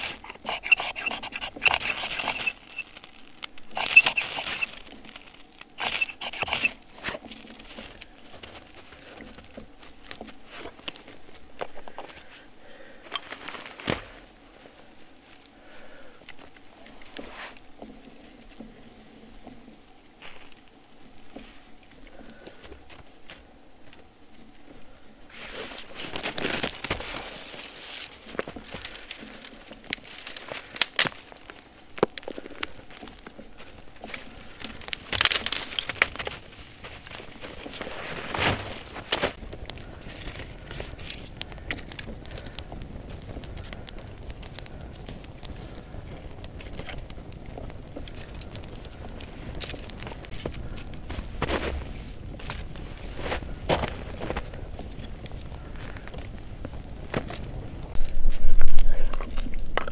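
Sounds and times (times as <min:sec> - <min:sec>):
knife scraping ferro rod: 0:00.0 - 0:03.0, 0:03.6 - 0:04.8, 0:05.8 - 0:07.2
twig fire crackling and popping: 0:00.0 - 0:59.9
short rustle: 0:25.3 - 0:59.6.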